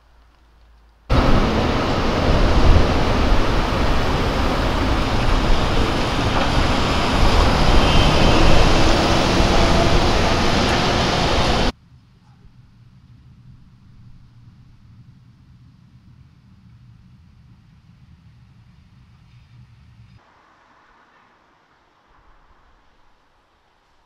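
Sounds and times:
cars passing on street: 1.1 - 11.7.

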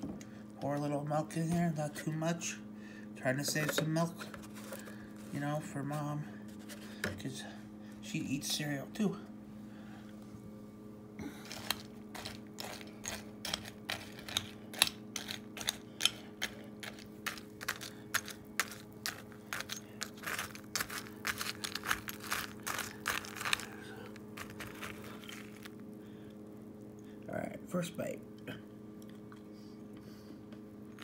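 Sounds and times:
spoon stirring cereal in bowl: 11.4 - 25.8.

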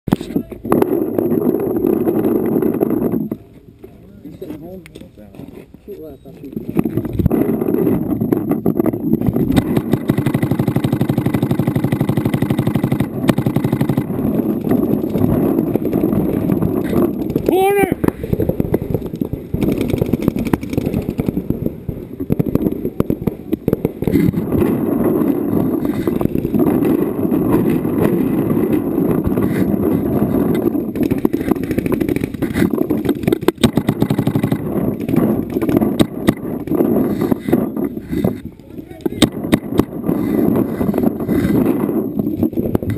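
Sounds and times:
dull rumble: 6.6 - 42.9
paintball markers firing: 9.2 - 42.9.

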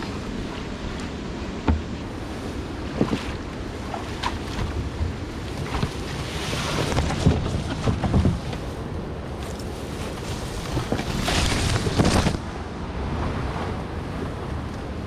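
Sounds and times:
river water splashing: 0.0 - 14.9
wind on microphone: 0.0 - 15.0.

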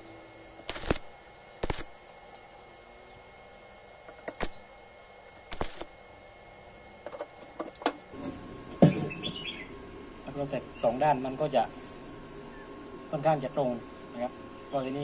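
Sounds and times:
stick welding bursts: 0.4 - 2.0, 4.2 - 4.7, 5.4 - 6.0.

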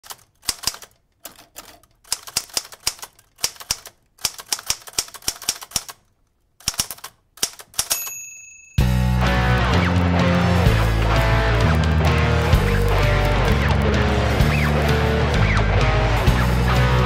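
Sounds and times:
typewriter keys clacking: 0.0 - 6.0, 6.6 - 8.3
typewriter bell ding: 7.8 - 9.0.

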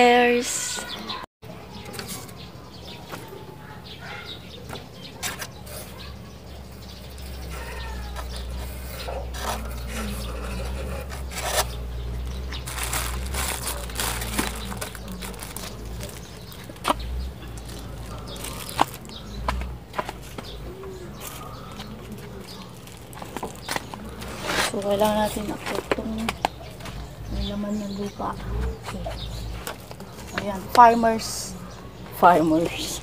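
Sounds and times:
faint bird calls: 0.7 - 24.7.

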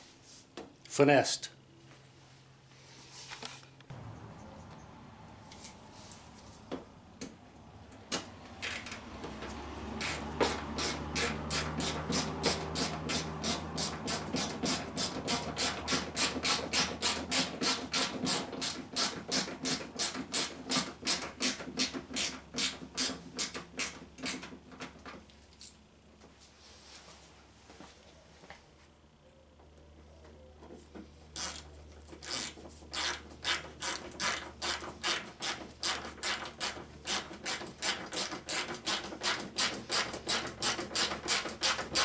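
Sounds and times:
hand tool sharp strokes: 10.0 - 24.4, 31.4 - 42.0.

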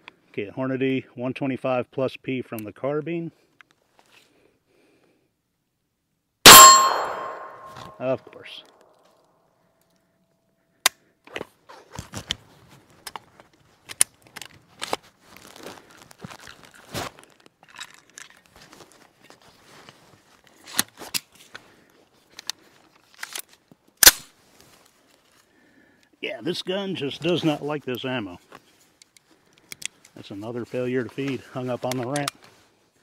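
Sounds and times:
gun action clicks and rattles: 17.6 - 18.5, 22.4 - 23.6.

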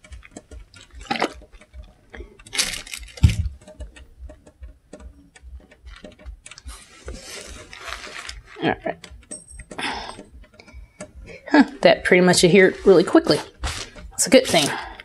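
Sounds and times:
fabric rustling: 6.7 - 8.8, 12.6 - 15.0.

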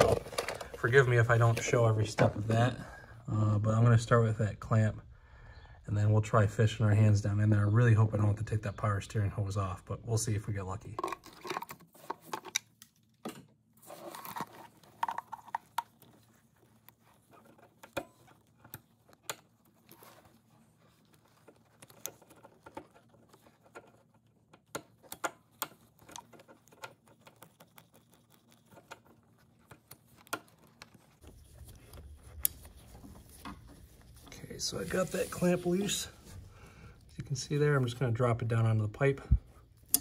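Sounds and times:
faint metal clicks and taps: 21.2 - 33.7.

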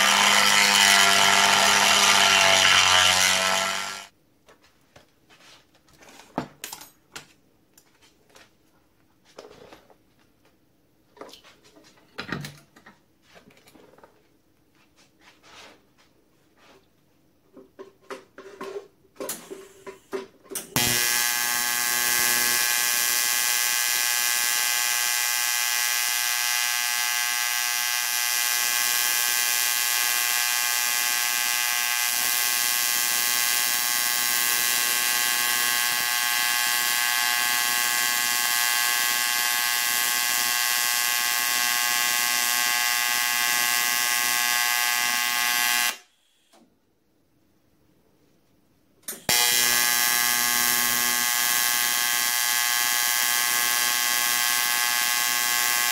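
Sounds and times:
welding arc buzzing: 0.0 - 4.1, 20.8 - 46.0, 49.1 - 55.9.

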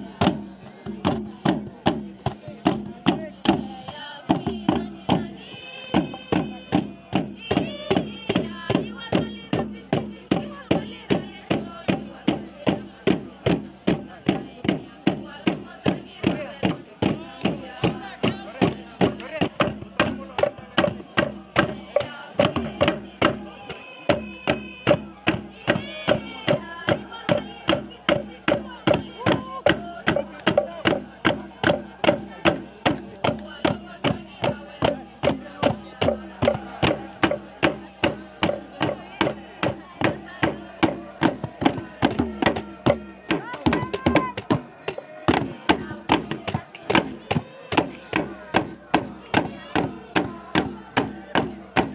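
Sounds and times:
steady drum beat: 0.0 - 51.9.

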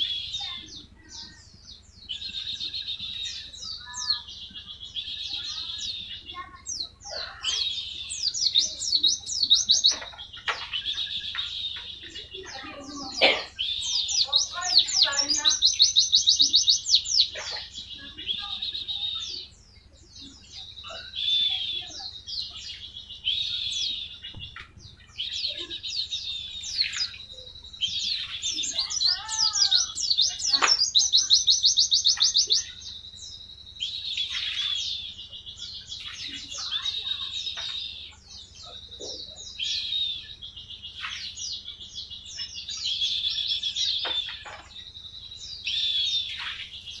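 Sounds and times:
bird fast trilling song: 0.0 - 47.0.

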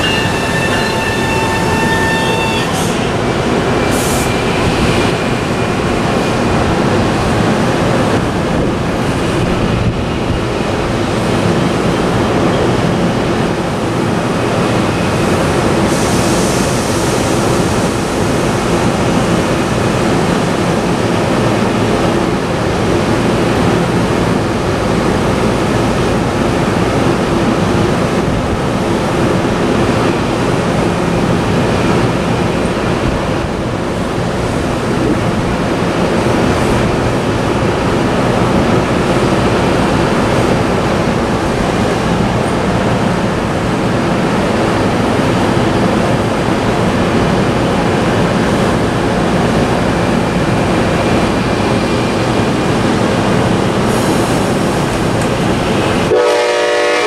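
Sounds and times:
train humming: 0.0 - 57.0
wind and rain rushing: 2.8 - 56.2.

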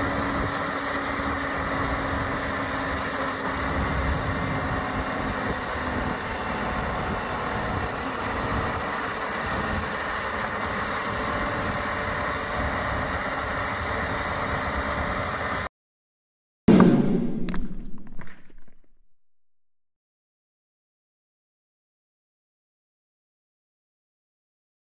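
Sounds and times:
tractor engine drone: 0.0 - 15.7
loud deep hit: 16.7 - 18.5.

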